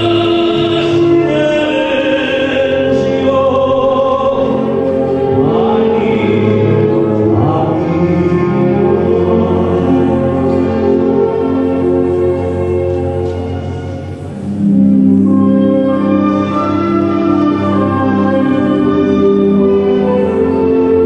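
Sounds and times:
backing music with choir voices: 0.0s - 21.0s.

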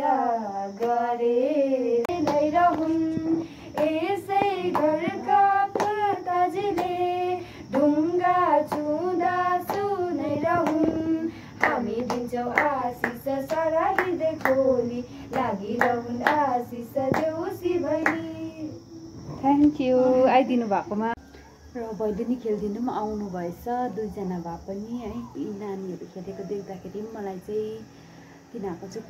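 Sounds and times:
girls singing: 0.0s - 19.3s
hand claps: 2.1s - 6.1s, 6.7s - 7.1s, 8.6s - 8.9s, 9.6s - 14.7s, 15.3s - 17.4s, 18.0s - 18.3s.

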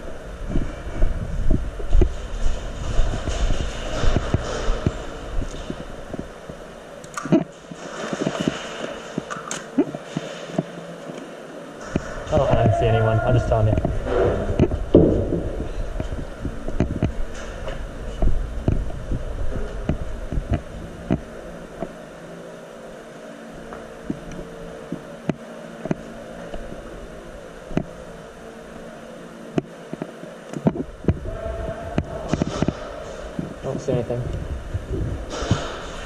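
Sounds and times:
steady hum: 0.0s - 36.0s
low thumping: 11.8s - 21.9s, 30.7s - 36.0s.

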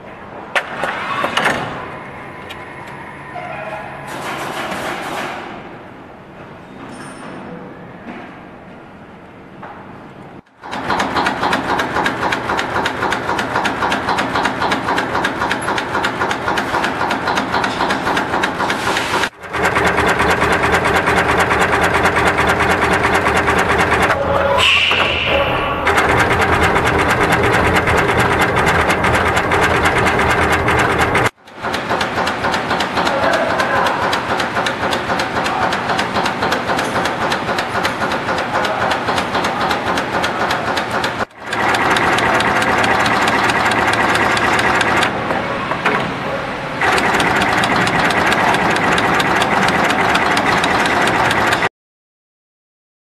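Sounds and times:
machine clattering rapidly: 4.1s - 5.7s, 10.5s - 24.2s, 24.9s - 45.2s, 46.8s - 51.7s.

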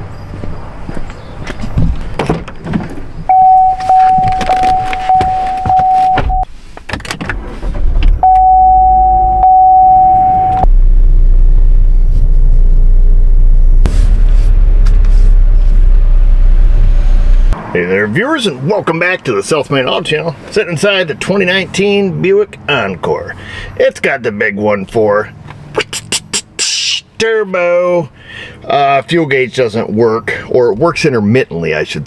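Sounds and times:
car engine running: 7.7s - 17.6s
high electronic chime tone: 8.2s - 10.7s.

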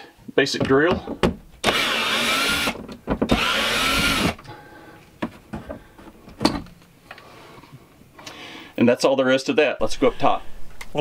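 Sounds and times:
cordless drill whine: 1.6s - 4.4s.

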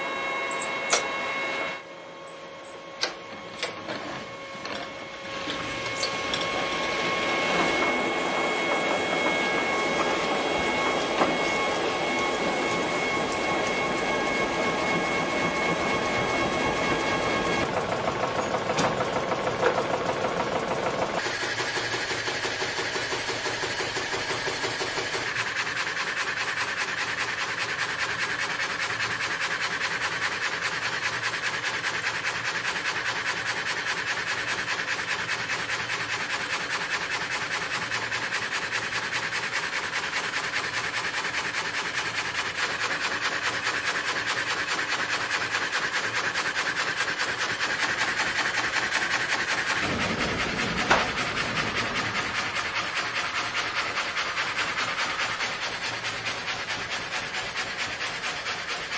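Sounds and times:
frame saw rasping through log: 5.2s - 17.7s, 25.2s - 58.9s.

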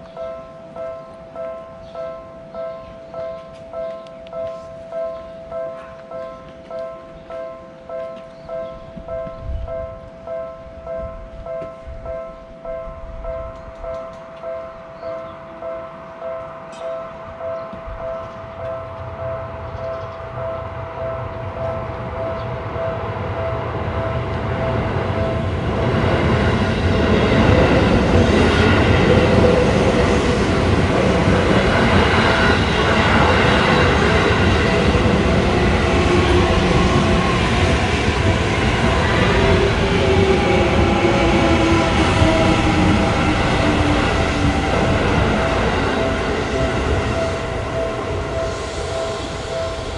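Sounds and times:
level crossing bell clanging: 0.0s - 25.4s
electric train passing: 0.0s - 49.9s.

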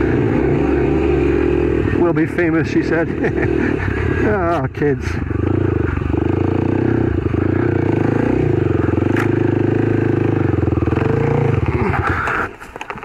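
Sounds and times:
motorcycle engine running: 0.0s - 13.0s
sharp click: 9.1s - 9.4s.

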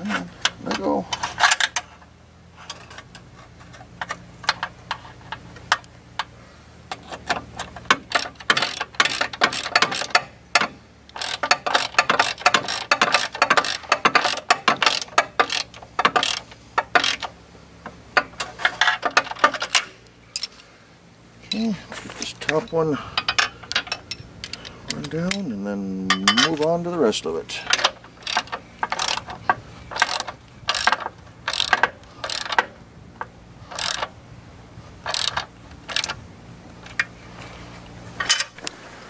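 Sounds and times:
socket ratchet clicking: 8.1s - 17.3s, 27.7s - 32.7s, 33.7s - 34.1s, 35.1s - 36.2s.

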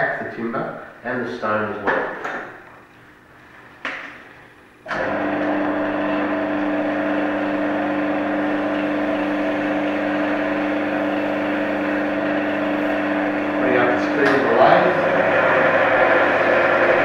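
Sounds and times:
wood lathe motor humming: 4.9s - 17.0s.

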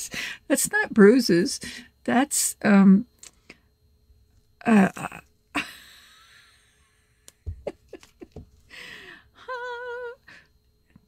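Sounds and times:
woman humming high: 4.6s - 6.6s, 8.8s - 10.5s.

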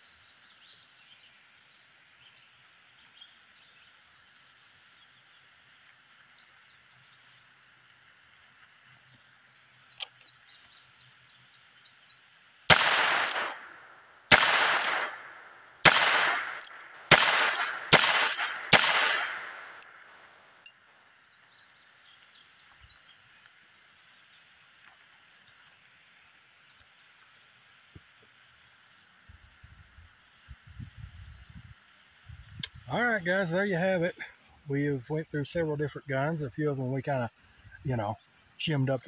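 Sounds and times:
birds chirping: 8.8s - 24.6s, 32.3s - 39.0s
revolver gunshots with echo: 12.7s - 20.1s.

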